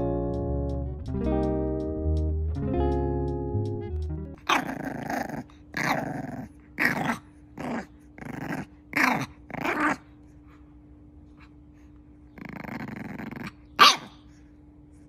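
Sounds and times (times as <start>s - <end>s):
puppy growling: 4.4s - 10.4s, 12.3s - 14.3s.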